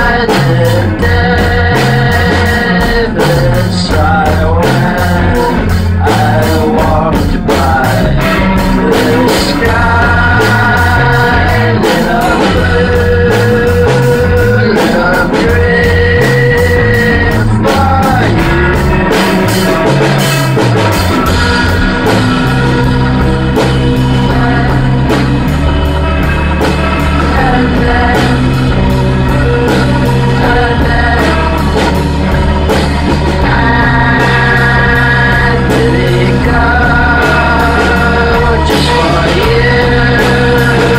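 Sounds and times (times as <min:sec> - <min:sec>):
person singing through rotating speaker: 0:00.0 - 0:20.0, 0:27.1 - 0:32.0, 0:33.2 - 0:40.9
bass guitar: 0:00.0 - 0:40.9
drums: 0:00.0 - 0:40.9
electric guitar: 0:00.0 - 0:40.9.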